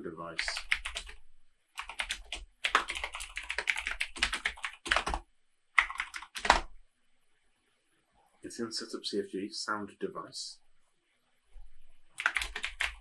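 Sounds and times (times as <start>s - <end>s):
typing on a computer keyboard: 0.4s - 1.2s, 1.8s - 5.2s, 5.8s - 6.8s, 12.1s - 13.0s.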